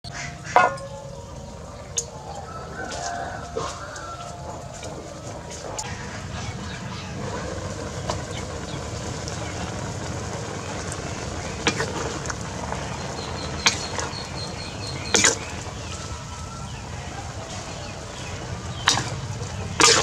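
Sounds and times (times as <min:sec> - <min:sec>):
wok cooking rumble: 0:00.0 - 0:20.0.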